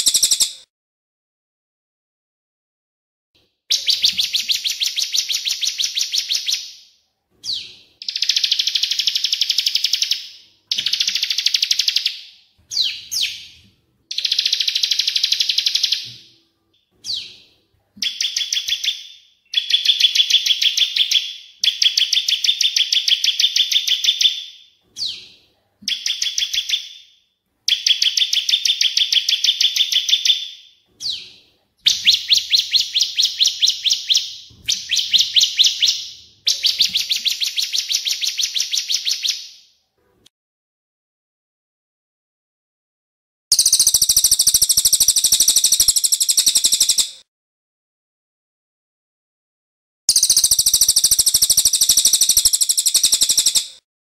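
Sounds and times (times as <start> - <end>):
high-pitched trilling bird song: 0.0 - 0.7, 3.7 - 39.7, 43.5 - 47.2, 50.1 - 53.8.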